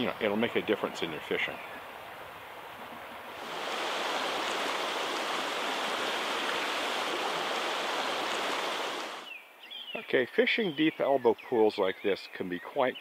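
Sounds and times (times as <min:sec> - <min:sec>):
creek water running: 0:00.0 - 0:09.3.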